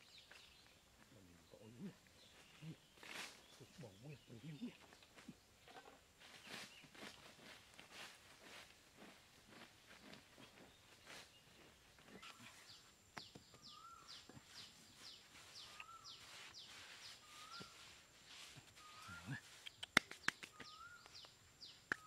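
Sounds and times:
sharp clicks and taps: 19.6s - 21.2s.

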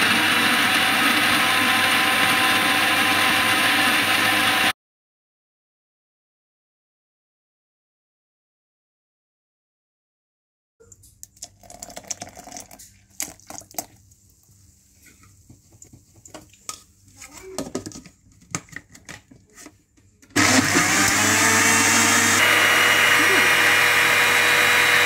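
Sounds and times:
blender motor running: 0.0s - 4.7s, 20.4s - 25.0s
milk pouring into plastic jar: 11.2s - 14.0s.

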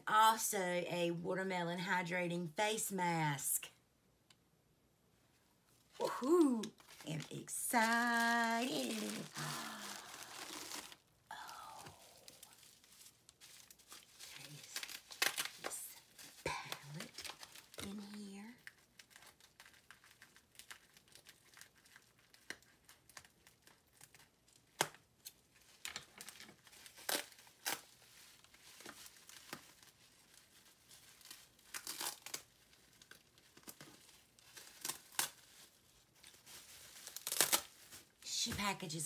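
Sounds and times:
wrapping paper crinkling and tearing: 6.0s - 39.0s.

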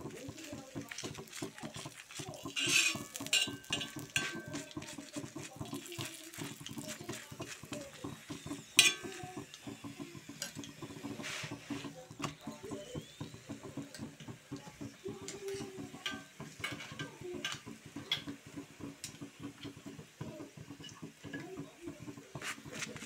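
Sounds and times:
clinks and scrapes on iron griddle: 0.2s - 9.5s, 15.5s - 18.4s, 22.3s - 23.0s.

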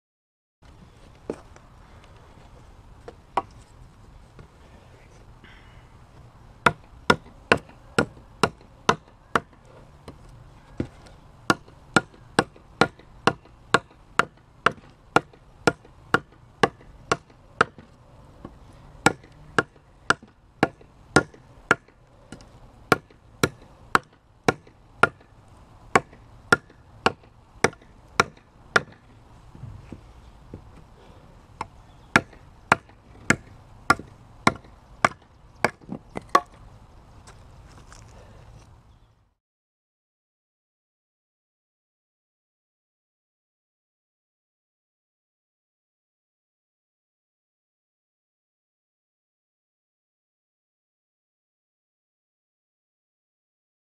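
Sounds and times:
knife chopping wood: 6.6s - 10.2s, 11.5s - 25.3s, 25.9s - 29.1s, 31.6s - 36.6s.

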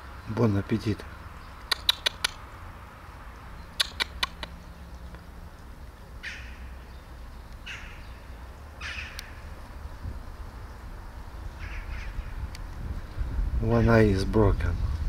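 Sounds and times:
bird harsh calls: 0.0s - 2.5s, 3.5s - 5.3s, 6.0s - 12.5s
quick sharp clicks: 1.6s - 2.4s, 3.7s - 5.2s.

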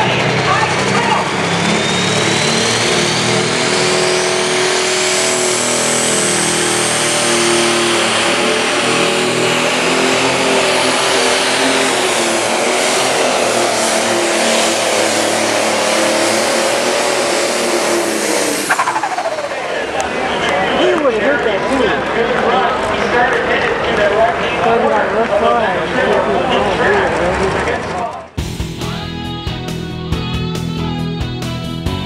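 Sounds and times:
turbo whine: 0.0s - 22.0s
diesel engine at full load: 0.0s - 32.0s.

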